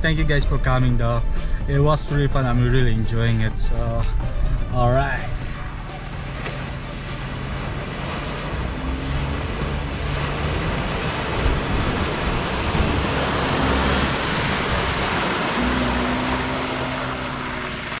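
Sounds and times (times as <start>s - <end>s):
vehicle engine running: 0.0s - 18.0s
rush of churned water: 5.2s - 18.0s.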